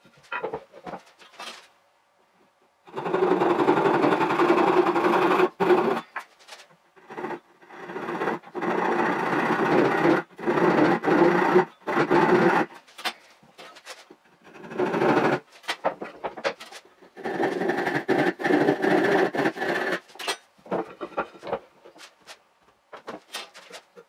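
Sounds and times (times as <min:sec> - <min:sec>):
handsaw rasping through wood: 0:02.9 - 0:06.1, 0:07.1 - 0:12.8, 0:14.5 - 0:15.4, 0:17.2 - 0:20.1.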